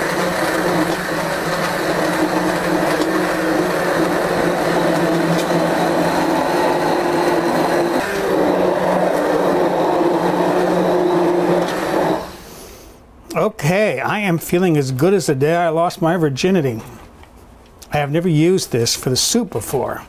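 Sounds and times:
immersion blender motor hum: 0.0s - 12.4s.

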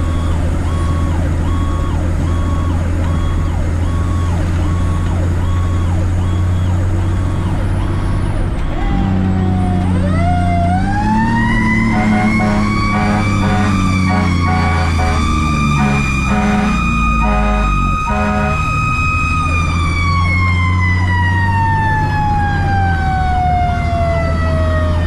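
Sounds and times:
electronic siren: 0.0s - 7.5s, 10.0s - 24.0s
diesel engine droning: 9.0s - 20.0s
siren winding up: 11.4s - 19.1s.

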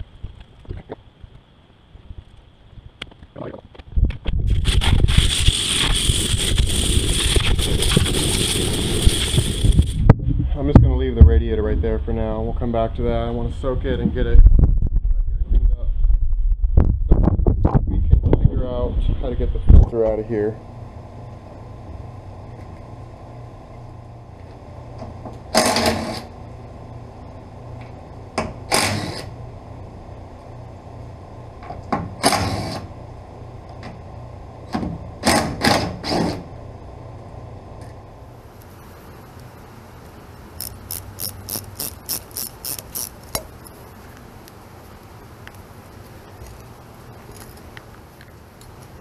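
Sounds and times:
cordless ratchet bursts: 28.7s - 29.3s, 40.6s - 43.7s.

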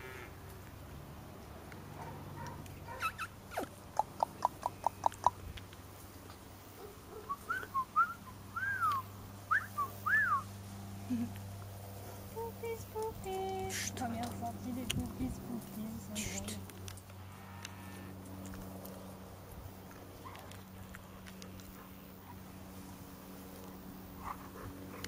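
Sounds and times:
puppies yipping: 2.0s - 5.3s
puppies whining: 2.4s - 3.7s.

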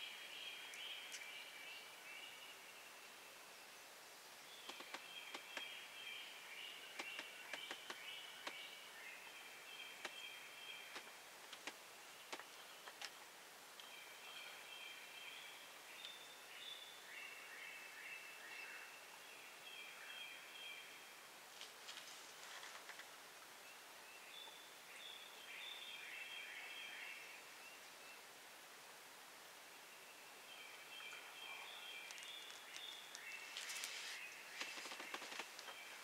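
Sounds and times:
woodland birds chirping: 0.0s - 36.0s
sharp clicks: 4.7s - 5.7s.

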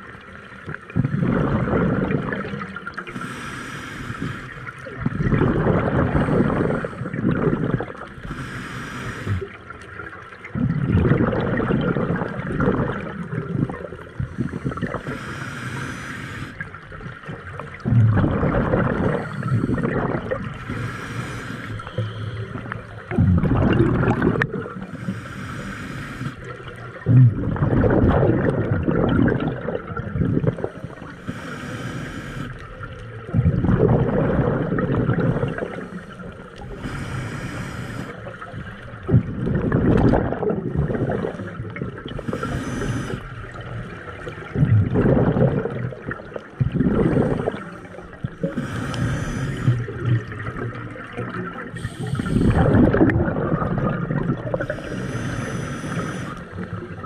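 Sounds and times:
exhaled bubbles gurgling: 0.0s - 57.0s
regulator hissing on inhale: 3.1s - 4.8s, 6.2s - 7.2s, 8.2s - 9.6s, 14.2s - 16.8s, 19.1s - 19.9s, 20.6s - 22.8s, 24.8s - 26.6s, 30.7s - 32.8s, 35.4s - 38.3s, 42.1s - 43.5s, 47.1s - 50.1s, 51.8s - 52.8s, 54.5s - 56.7s.

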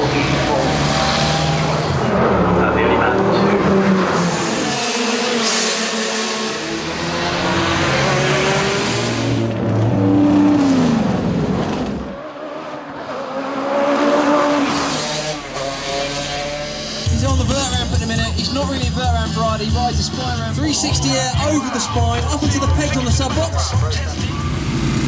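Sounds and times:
racing car engines revving: 0.0s - 25.0s.

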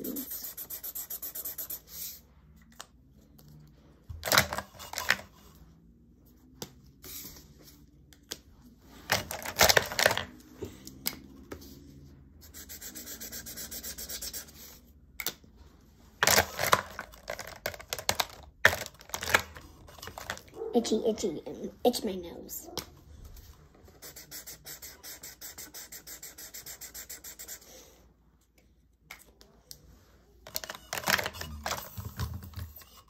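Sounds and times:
marker scratching on paper: 0.0s - 2.3s, 11.5s - 14.9s, 23.8s - 27.9s
marker caps clicking and clatter: 4.2s - 5.3s, 9.1s - 11.2s, 16.2s - 20.5s, 30.4s - 33.0s.

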